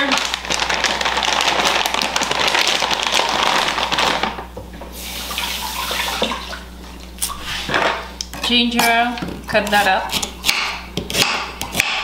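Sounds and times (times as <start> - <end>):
tap running water: 4.3 - 7.9.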